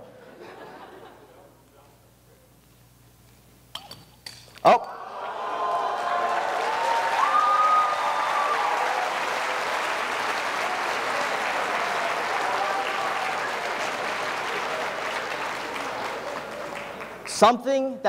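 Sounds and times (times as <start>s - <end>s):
people cheering: 4.7s - 17.3s
audience applauding: 4.9s - 17.4s.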